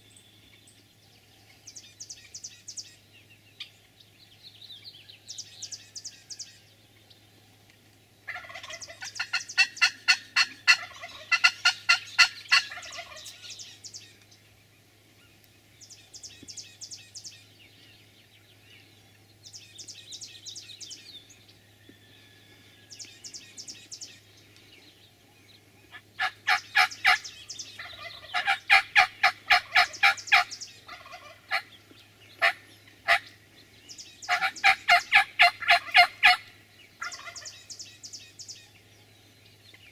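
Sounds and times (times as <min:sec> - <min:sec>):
turkeys gobbling: 0:08.3 - 0:13.6, 0:25.9 - 0:33.3, 0:34.3 - 0:37.6.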